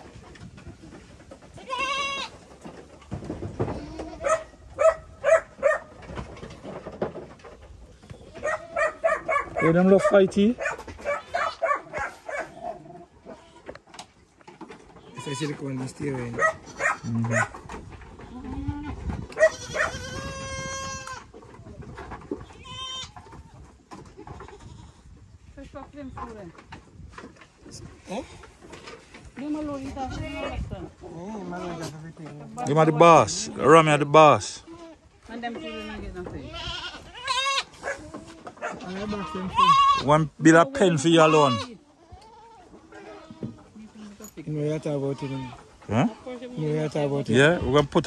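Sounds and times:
goats bleating: 1.5s - 2.4s, 3.7s - 4.4s, 16.6s - 17.4s, 19.4s - 21.3s, 34.5s - 43.6s.

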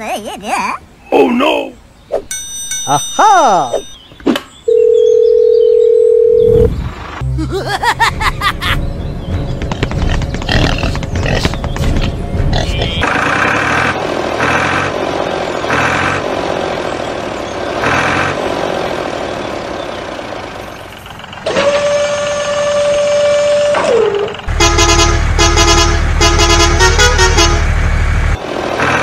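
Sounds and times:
repeating vehicle sound: 7.2s - 29.0s
short horn toots: 24.5s - 27.7s
long horn blast sagging in pitch: 24.5s - 27.8s.

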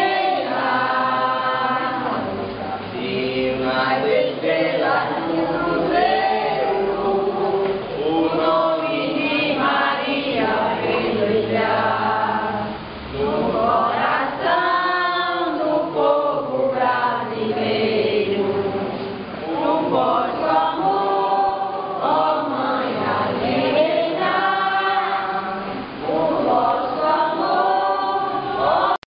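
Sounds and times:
congregation singing a hymn: 0.0s - 29.0s.

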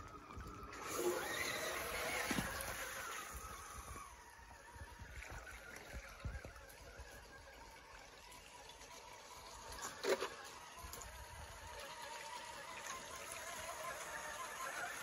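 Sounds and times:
creek water trickling and splashing: 0.0s - 15.0s.

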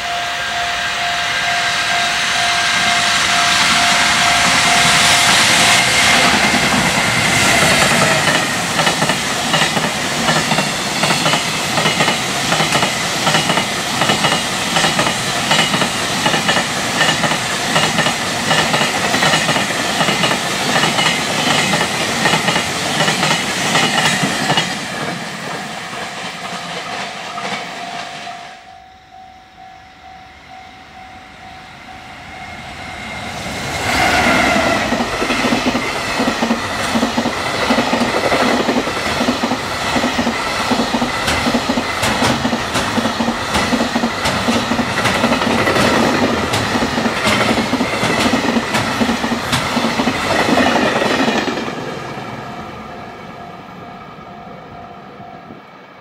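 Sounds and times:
level-crossing warning bell: 0.0s - 25.1s, 25.9s - 51.4s, 52.0s - 56.0s
train wheels clattering over rail joints: 6.2s - 27.7s, 34.8s - 51.7s.

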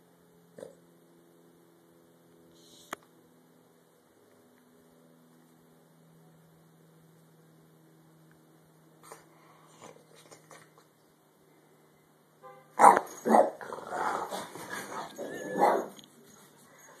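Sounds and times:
dog barking sharply: 12.8s - 13.6s.

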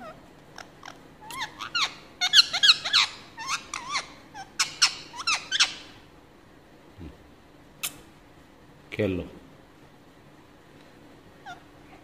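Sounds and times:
parrot squeaky chirps: 0.0s - 6.0s.

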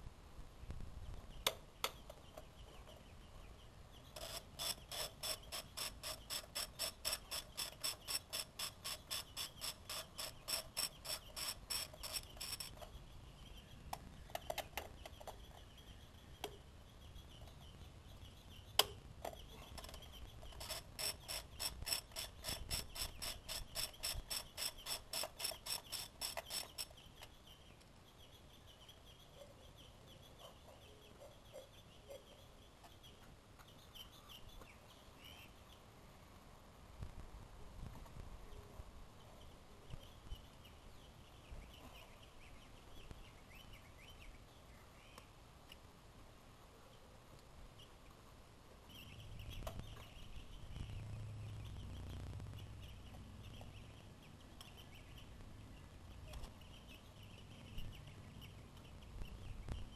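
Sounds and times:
ratchet wrench clicking: 20.6s - 26.9s.

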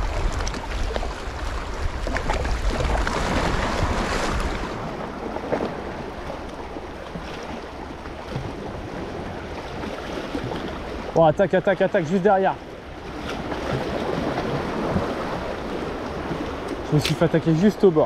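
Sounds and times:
wind buffeting microphone: 0.0s - 7.0s
waves splashing against rocks: 0.0s - 18.0s.

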